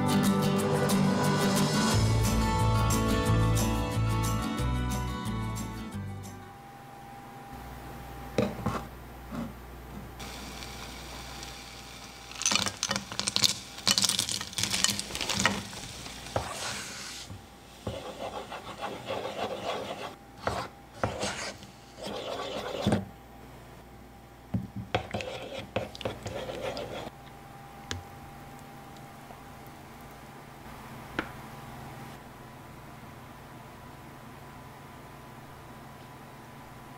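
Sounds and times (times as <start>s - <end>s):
spatula scraping a saucepan: 17.9s - 23.0s, 25.0s - 27.1s.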